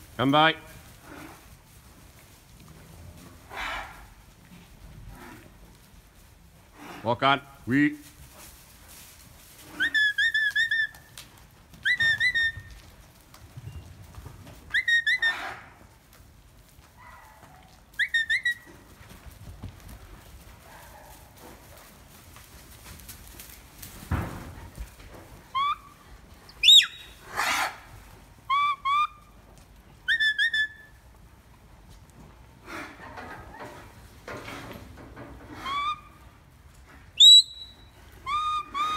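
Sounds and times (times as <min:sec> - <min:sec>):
herding whistle commands: 0:09.8 - 0:11.0, 0:11.8 - 0:12.6, 0:14.7 - 0:15.4, 0:18.0 - 0:18.7, 0:26.6 - 0:27.2, 0:28.5 - 0:29.2, 0:30.1 - 0:30.9, 0:37.2 - 0:38.9.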